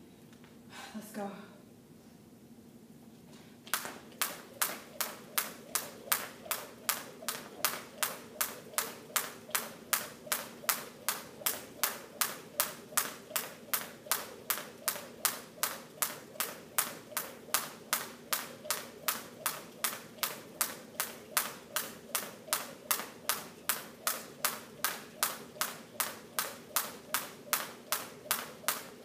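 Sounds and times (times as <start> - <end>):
jump rope slapping gym floor: 3.6 - 29.0.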